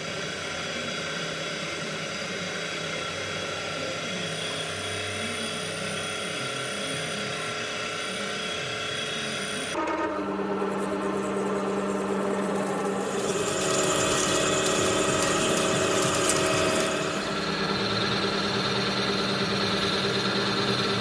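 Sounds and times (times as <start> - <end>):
milling machine cutting: 4.2 - 21.0
deep machine hum: 9.7 - 21.0.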